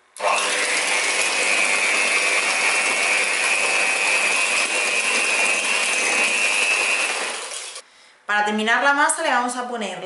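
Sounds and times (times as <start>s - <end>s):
electric hand mixer whisking: 0.2s - 7.8s.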